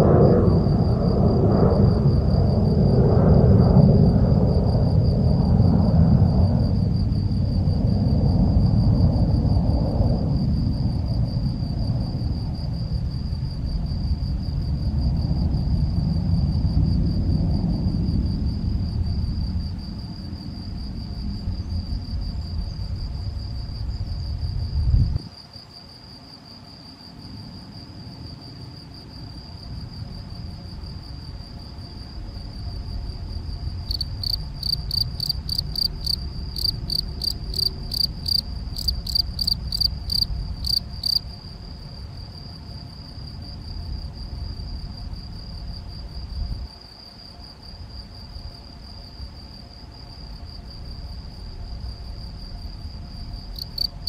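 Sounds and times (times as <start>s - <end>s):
low rumble: 0.0s - 25.2s
cricket chirping: 0.0s - 54.0s.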